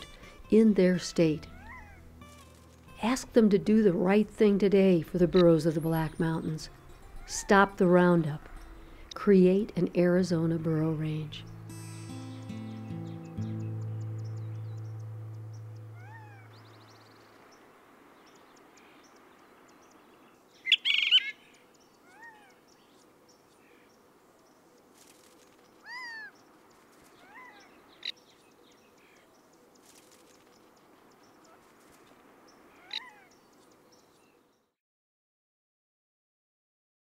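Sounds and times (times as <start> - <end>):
faint outdoor ambience: 0.0 - 34.8
animal chirping calls: 1.4 - 2.4, 13.6 - 17.4, 20.6 - 22.6, 25.8 - 26.4, 27.1 - 28.2, 32.7 - 33.4
low musical note: 11.3 - 17.0.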